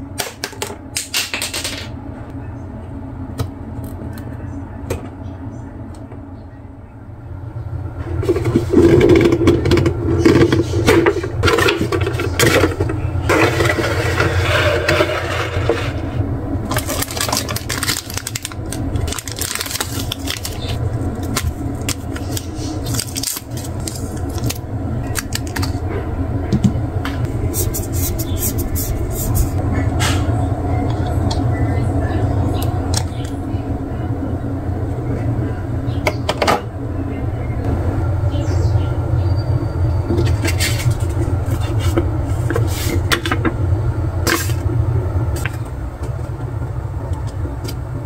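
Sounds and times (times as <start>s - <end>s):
steady low hum: 0.0s - 48.0s
cardboard and plastic rustling: 16.7s - 25.8s
plastic bag crinkling: 16.7s - 25.8s.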